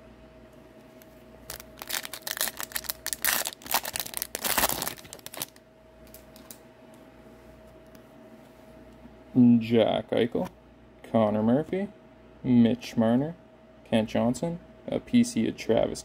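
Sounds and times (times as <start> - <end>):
foil wrapper tearing and crinkling: 1.5 - 6.2.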